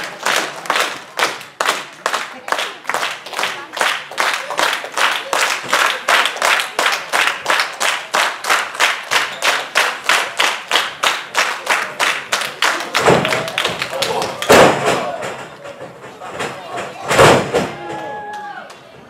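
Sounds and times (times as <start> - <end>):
audience clapping in unison: 0.0 - 15.1.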